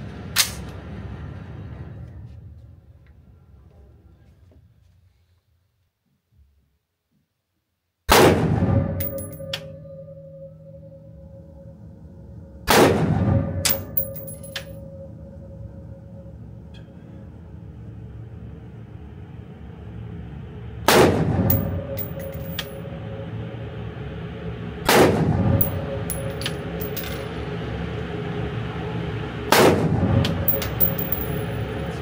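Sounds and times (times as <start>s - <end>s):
rifle shots echoing indoors: 8.1s - 9.6s.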